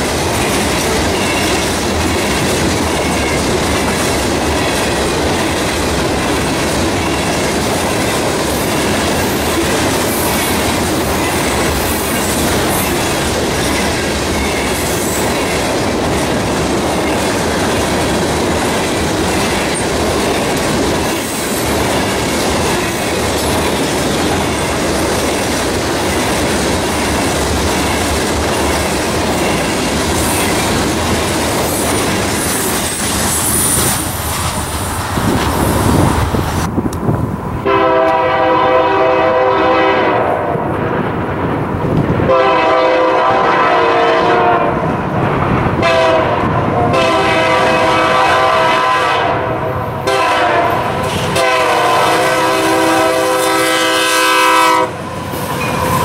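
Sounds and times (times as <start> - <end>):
freight train wheels clicking: 0.0 - 39.0, 49.9 - 56.0
locomotive air horn blasts: 37.6 - 40.5, 42.3 - 44.8, 45.8 - 55.0.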